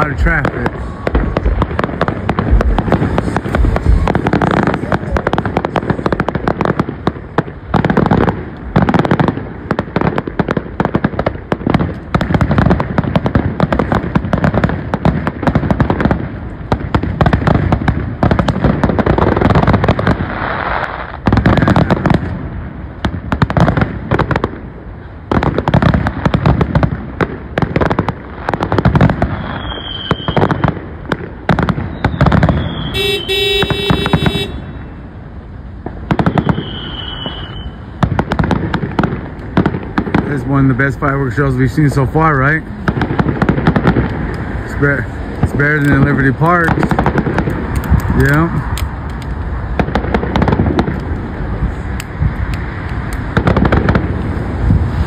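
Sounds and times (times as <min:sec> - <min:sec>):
firework shell bursts: 0:28.8 - 0:30.6, 0:31.6 - 0:35.0, 0:35.9 - 0:40.4.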